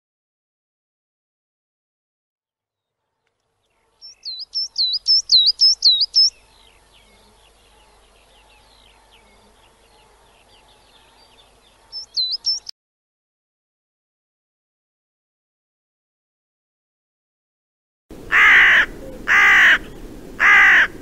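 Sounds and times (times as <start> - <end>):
coal tit singing: 3.8 - 12.7.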